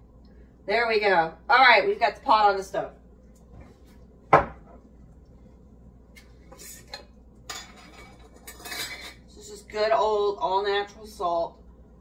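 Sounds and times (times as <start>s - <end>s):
metal kitchenware clanking: 6.9s - 9.3s.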